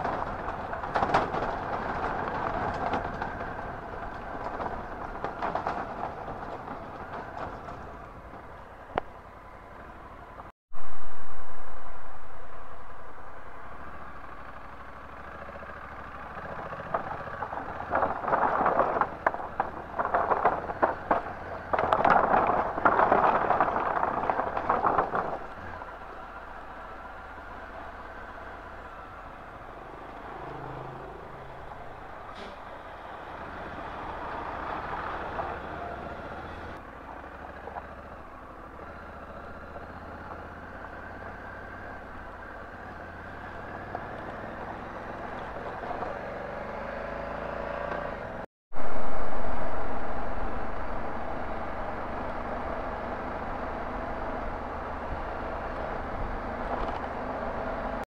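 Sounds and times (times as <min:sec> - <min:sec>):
motorcycle engine: 0:00.0 - 0:10.5, 0:13.3 - 0:58.0
wind noise: 0:16.6 - 0:26.0, 0:48.8 - 0:57.6.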